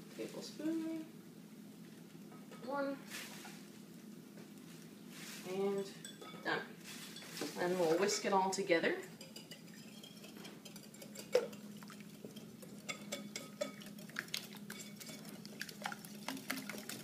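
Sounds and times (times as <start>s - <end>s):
whisk clicking against glass bowl: 9.1s - 15.2s.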